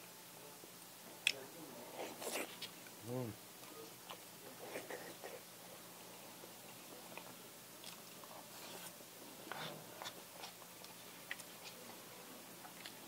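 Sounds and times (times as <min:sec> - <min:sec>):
person chewing: 0:02.0 - 0:02.8, 0:04.0 - 0:12.0, 0:12.6 - 0:13.0.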